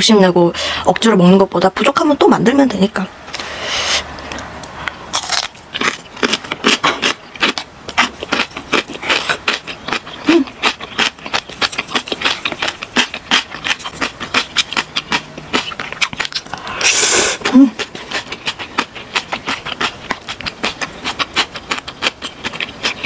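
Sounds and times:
chewing and mouth sounds: 0:04.2 - 0:23.0.

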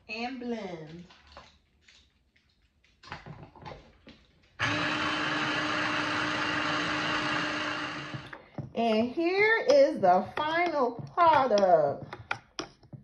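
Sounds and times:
food processor motor humming: 0:04.6 - 0:08.4.

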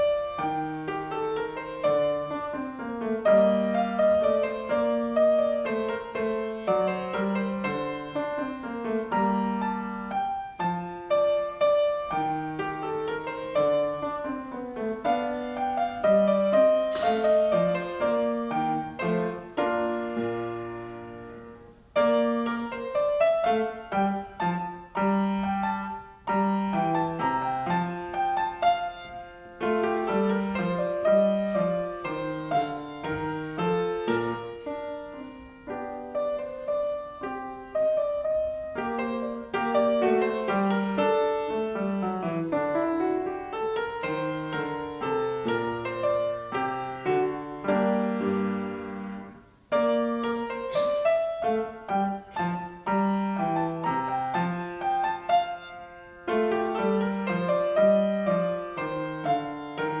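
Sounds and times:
solo grand piano: 0:00.0 - 1:00.0.

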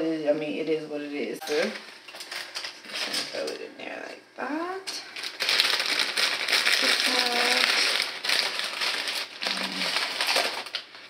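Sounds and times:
plastic package crinkling: 0:01.6 - 0:03.3, 0:05.1 - 0:11.0.

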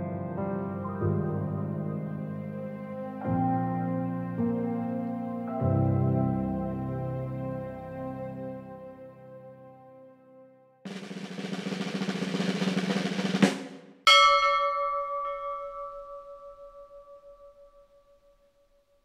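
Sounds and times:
background music: 0:00.0 - 0:12.7
snare drum roll: 0:10.9 - 0:14.1
bell ringing: 0:14.1 - 0:18.2.

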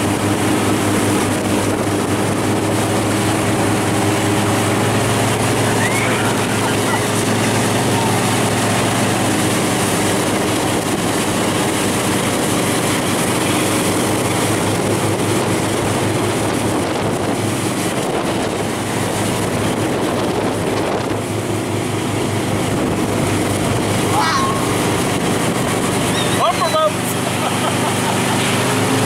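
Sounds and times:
motorboat engine running: 0:00.0 - 0:29.0
water rushing: 0:00.0 - 0:29.0.

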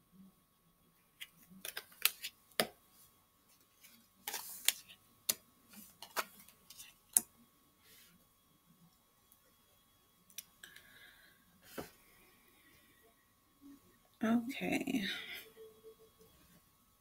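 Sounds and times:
cards sliding rustle: 0:01.2 - 0:02.7, 0:03.5 - 0:07.2.

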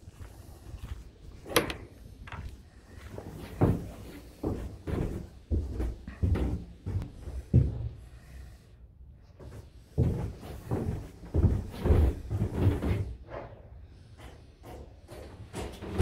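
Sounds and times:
footsteps on hollow wooden floor: 0:00.0 - 0:08.2, 0:09.3 - 0:13.6.

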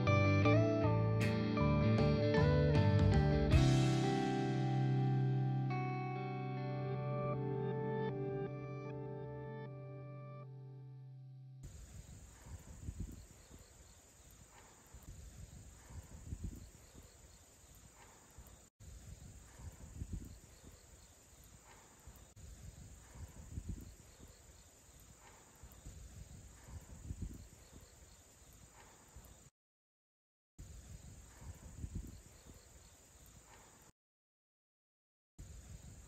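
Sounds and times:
insects droning: 0:11.6 - 0:29.5, 0:30.6 - 0:33.9.

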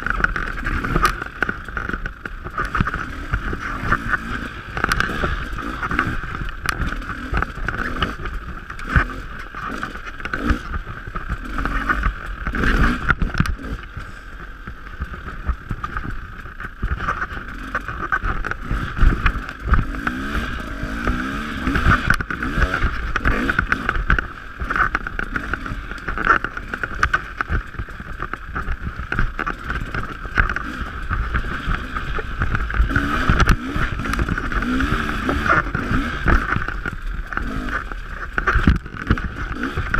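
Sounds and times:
dirt bike engine revving: 0:00.0 - 0:39.9
knocks and rattles: 0:15.0 - 0:39.9.

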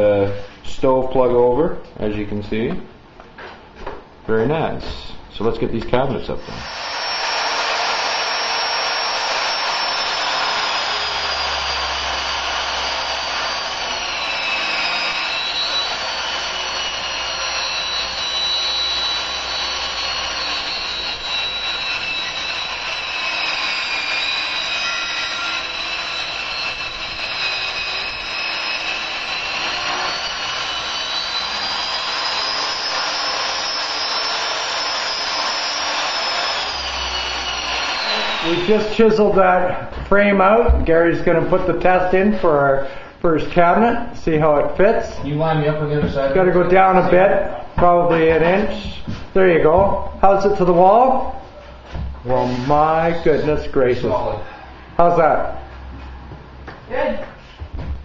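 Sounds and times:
power tool motor whining: 0:06.5 - 0:39.0.

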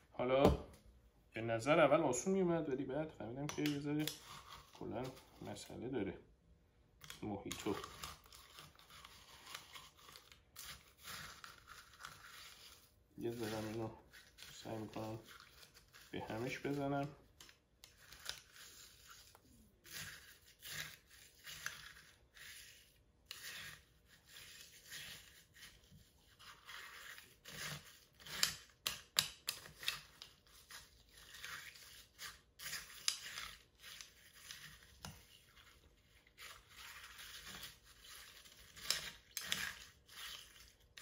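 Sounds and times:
spoon stirring crushed ice in glass: 0:07.0 - 0:16.9, 0:17.9 - 0:41.0.

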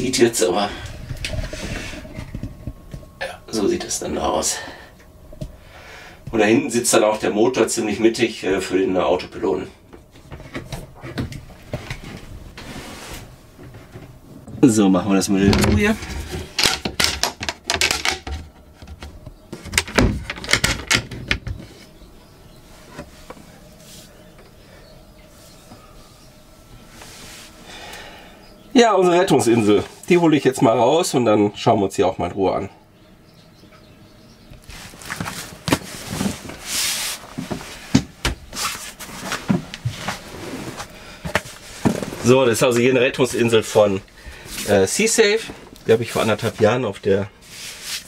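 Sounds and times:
wooden locker doors knocking shut: 0:15.4 - 0:21.7.

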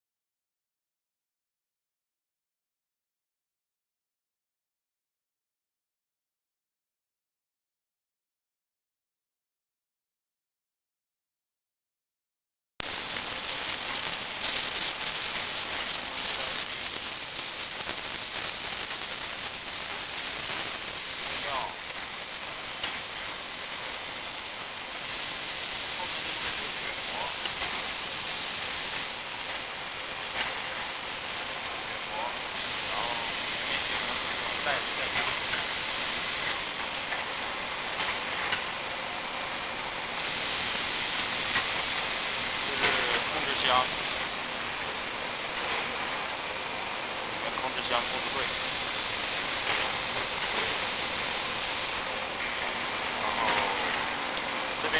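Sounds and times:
packaging machinery hissing and rattling: 0:12.8 - 0:54.9.

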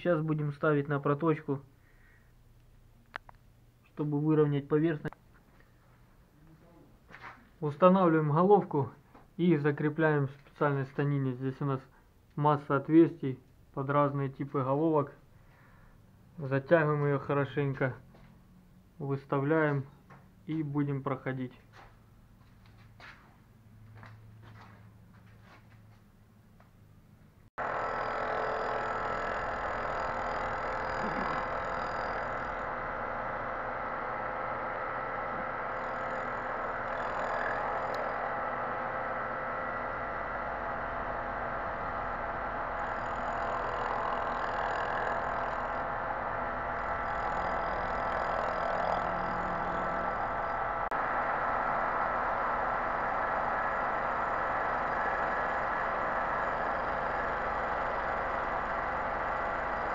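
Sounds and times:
faint steady tones: 0:27.6 - 0:59.9
machining whir of rotating cutter: 0:27.6 - 0:59.9.

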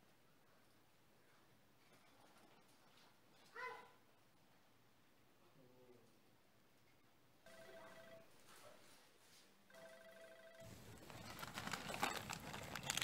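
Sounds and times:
faint ringing tone: 0:07.4 - 0:08.4, 0:09.7 - 0:10.8.

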